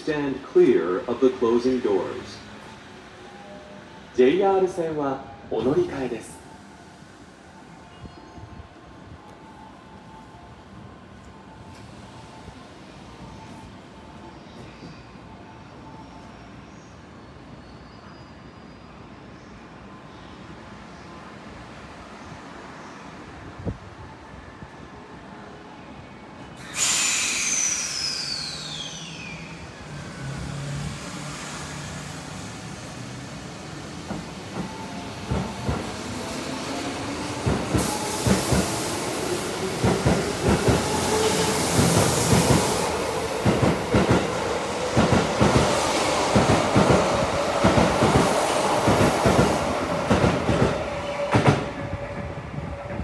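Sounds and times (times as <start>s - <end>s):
air hiss with falling whistle: 26.6s - 29.6s.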